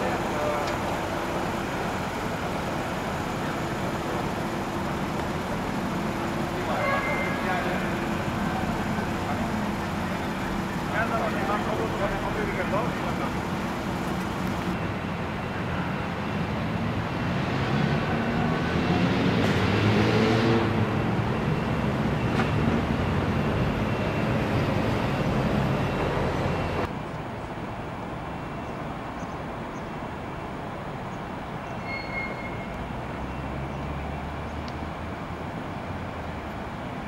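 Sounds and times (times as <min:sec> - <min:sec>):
road traffic rumble: 0:00.0 - 0:37.0
vehicle going by: 0:17.0 - 0:26.9.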